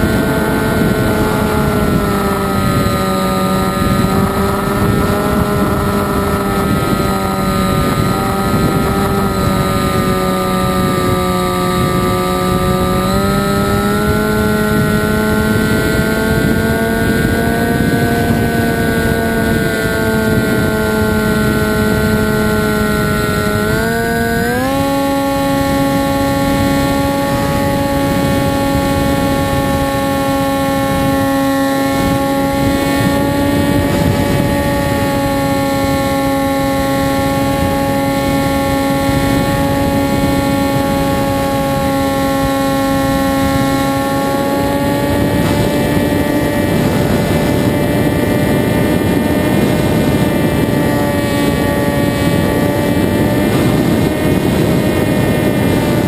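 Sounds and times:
model aircraft motor whine: 0.0 - 56.0
rushing wind noise: 0.0 - 56.0.

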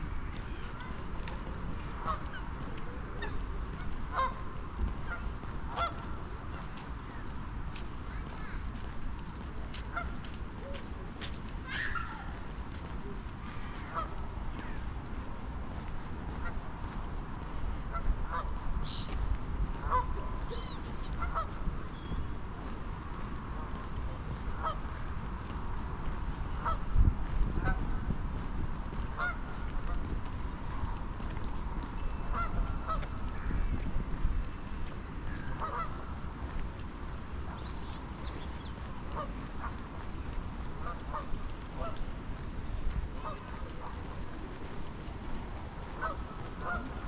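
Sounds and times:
geese honking: 1.8 - 7.3, 9.9 - 10.8, 13.0 - 14.9, 17.9 - 19.2, 19.8 - 22.0, 24.5 - 25.0, 26.5 - 26.9, 29.1 - 30.1, 32.2 - 33.5, 35.3 - 36.2, 39.0 - 40.0, 40.7 - 42.2, 43.2 - 44.6, 45.8 - 47.0.

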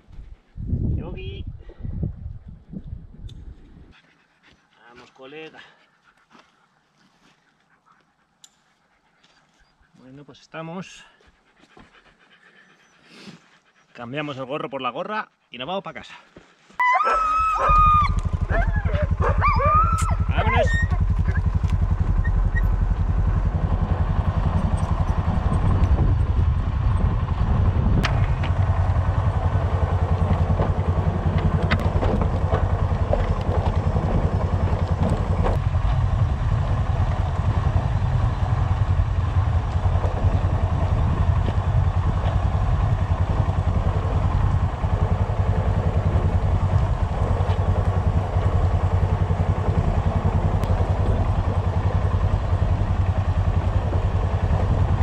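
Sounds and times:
vehicle engine running at low revs: 17.4 - 55.0
rig knocking and clattering: 29.8 - 36.0.

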